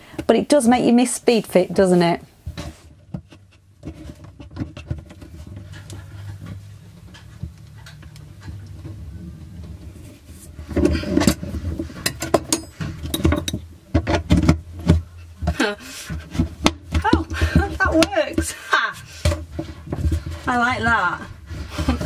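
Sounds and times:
low steady hum: 0.0s - 22.0s
quiet handling noise: 2.4s - 18.4s.

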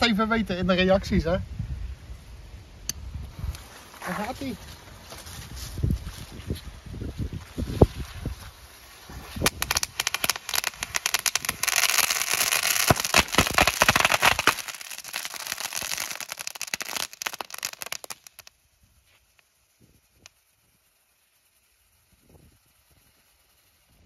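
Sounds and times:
fireworks crackling: 2.4s - 21.4s.

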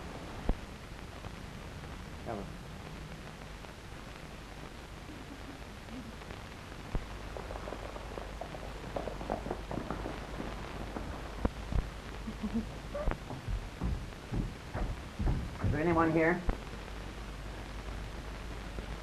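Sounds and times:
film soundtrack hiss: 0.0s - 19.0s
horse hooves on dirt: 7.0s - 16.4s.

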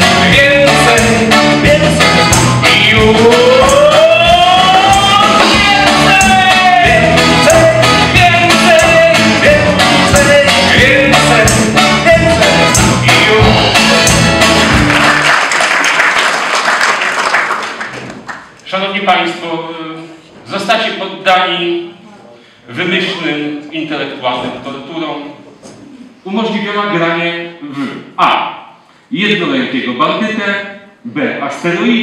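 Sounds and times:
man singing: 0.0s - 14.3s
accordion: 0.0s - 15.2s
double bass: 0.0s - 15.3s
audience applause: 14.6s - 18.6s.

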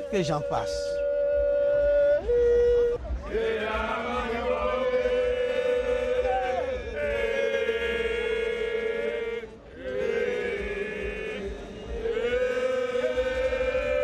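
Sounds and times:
men chanting together: 3.3s - 14.0s.

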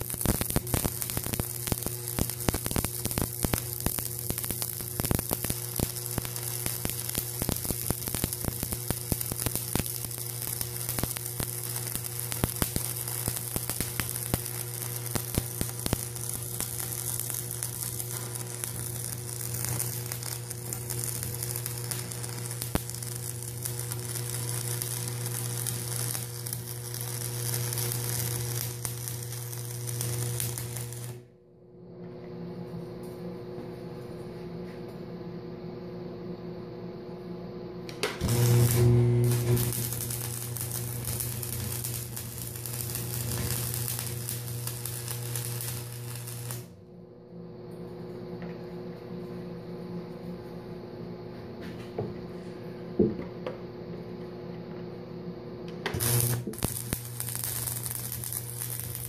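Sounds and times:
welding arc crackling sizzle: 0.0s - 31.3s, 37.9s - 46.8s, 55.8s - 59.0s
welder hum: 0.0s - 35.0s, 35.8s - 50.7s, 51.3s - 59.0s.

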